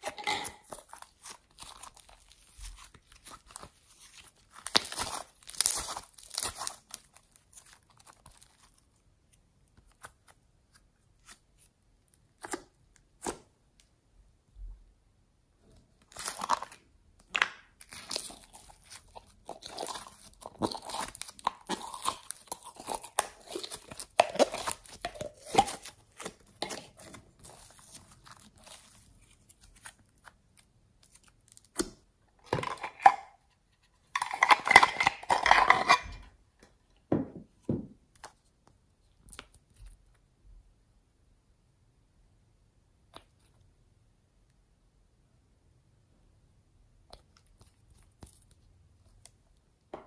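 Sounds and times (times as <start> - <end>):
slime squelching: 0.0 - 9.0, 16.1 - 32.0.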